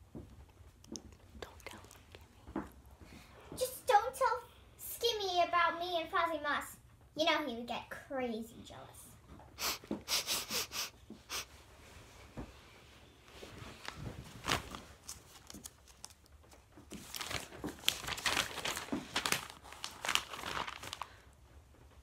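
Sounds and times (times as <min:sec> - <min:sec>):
rustling and handling noise: 0:09.2 - 0:22.0.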